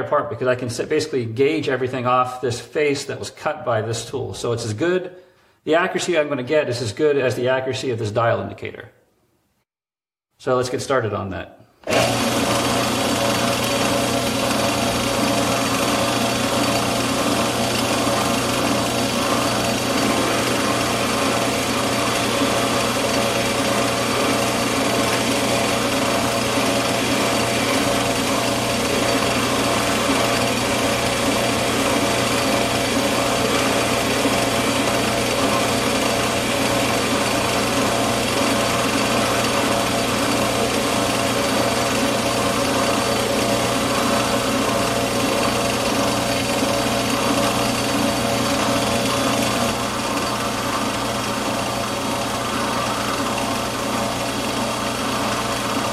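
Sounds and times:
cutter cutting steel: 0:11.8 - 0:55.9
metal lathe running: 0:11.9 - 0:55.9.

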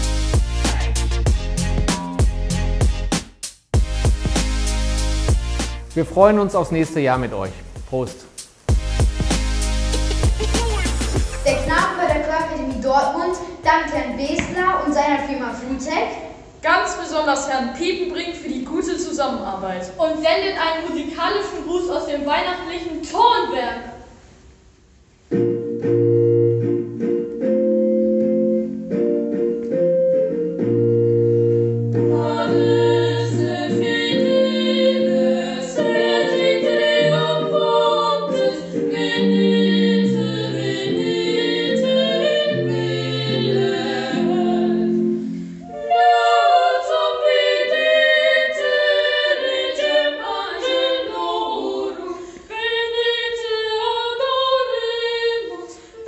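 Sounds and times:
boys singing: 0:10.3 - 0:13.0, 0:32.2 - 0:44.8, 0:45.8 - 0:55.6
organ playing held chords: 0:25.3 - 0:33.4.

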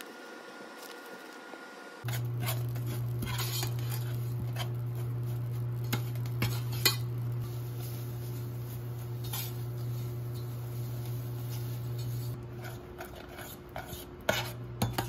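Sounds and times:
steady low hum: 0:00.0 - 0:15.0
metal spoon scraping saucepan: 0:02.0 - 0:07.2, 0:09.0 - 0:15.0.

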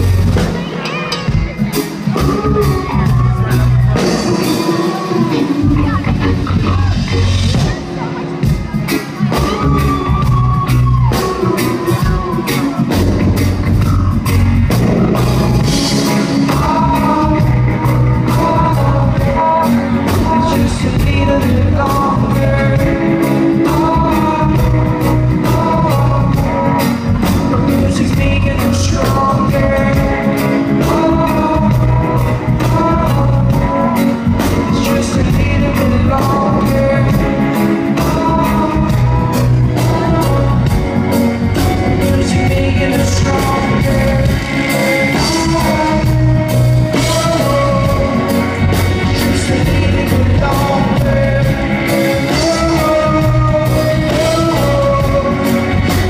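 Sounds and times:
live reggae band playing: 0:00.0 - 0:56.0
person singing: 0:00.0 - 0:56.0.

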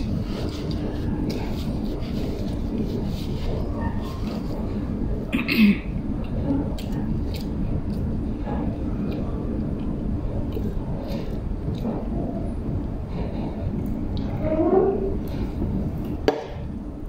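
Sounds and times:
low background rumble: 0:00.0 - 0:17.0
person clearing throat: 0:05.3 - 0:06.0.

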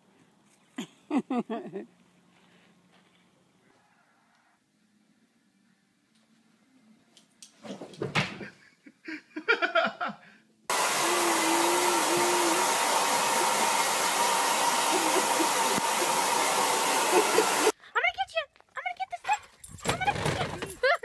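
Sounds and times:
hair dryer blowing: 0:10.7 - 0:17.8.

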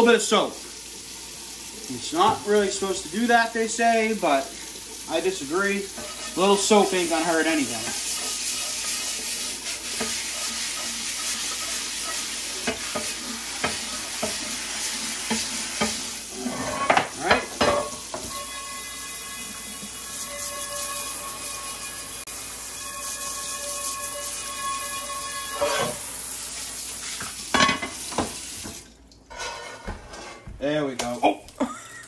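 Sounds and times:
sink sprayer hissing: 0:00.0 - 0:28.8
water sizzling on hot iron: 0:00.0 - 0:29.9
brush scrubbing cast iron pan: 0:02.0 - 0:27.7
ringing tones: 0:18.3 - 0:25.8.

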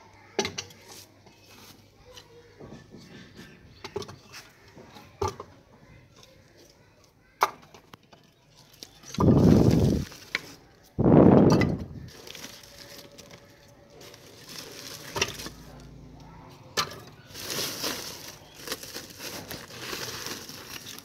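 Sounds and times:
plastic sack rustling: 0:08.7 - 0:15.9, 0:16.8 - 0:21.0.

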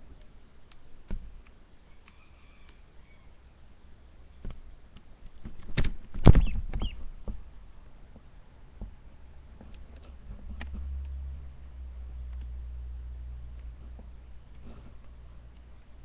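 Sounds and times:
low hum: 0:06.4 - 0:16.0
light ticks: 0:12.2 - 0:12.6.

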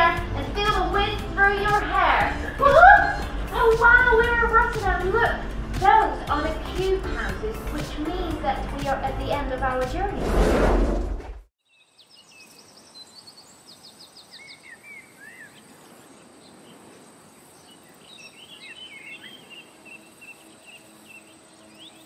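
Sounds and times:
birds chirping: 0:00.0 - 0:09.0, 0:11.6 - 0:22.0
steady background hiss: 0:12.1 - 0:22.0.

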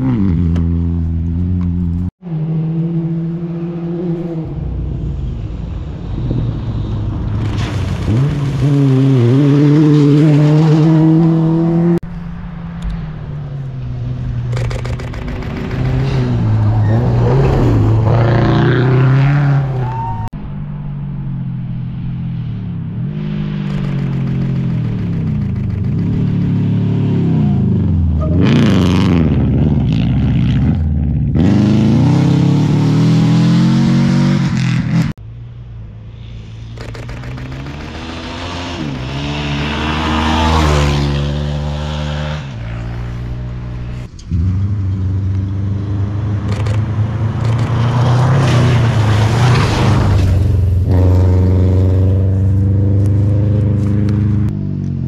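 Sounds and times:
rally car engine revving: 0:07.1 - 0:12.0, 0:14.0 - 0:20.0, 0:23.0 - 0:35.2, 0:36.6 - 0:55.0.

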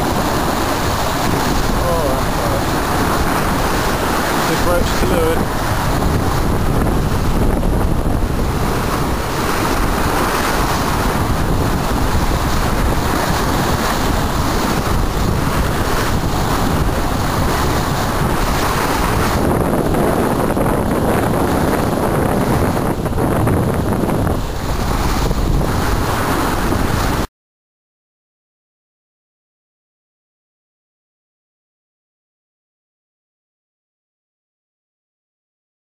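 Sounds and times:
water rushing along hull: 0:00.0 - 0:27.3
wind buffeting microphone: 0:00.0 - 0:27.3.

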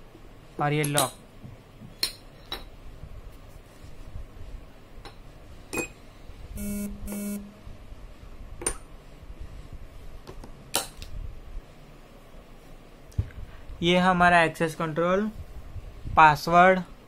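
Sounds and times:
keypad buzzer beeps: 0:06.6 - 0:07.5.

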